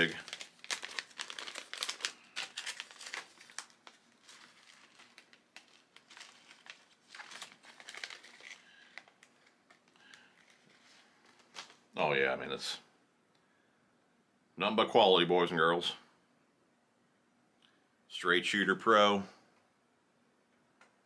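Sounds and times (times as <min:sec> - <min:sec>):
packaging crinkling and rustling: 0:00.0 - 0:11.9.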